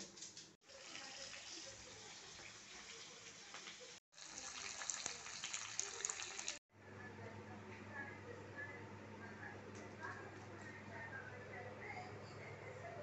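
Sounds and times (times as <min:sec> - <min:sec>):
vegetables sizzling in oil: 0:00.7 - 0:06.6.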